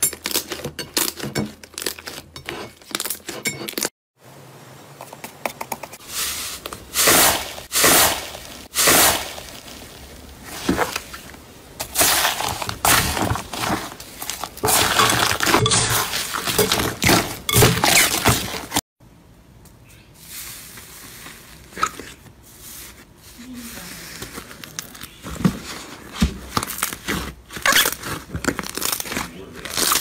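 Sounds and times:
slime crackling and squishing: 6.1s - 18.8s, 26.4s - 30.0s.

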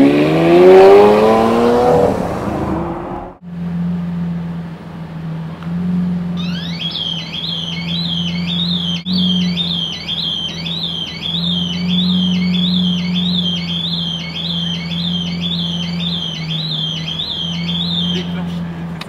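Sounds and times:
sports car engine idling: 3.4s - 19.0s
motorcycle alarm wailing: 6.4s - 18.6s.

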